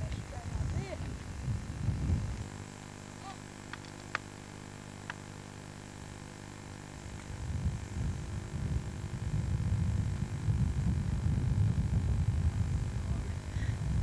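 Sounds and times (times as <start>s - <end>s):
wind rumbling on microphone: 0.0s - 2.8s, 6.9s - 14.0s
low hum: 0.0s - 14.0s.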